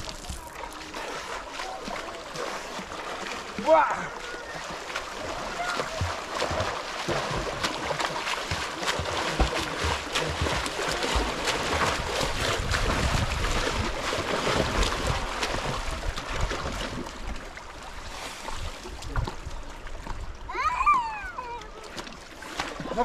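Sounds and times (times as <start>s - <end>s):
river water rushing: 0.0s - 18.0s
water splashing: 0.0s - 23.0s.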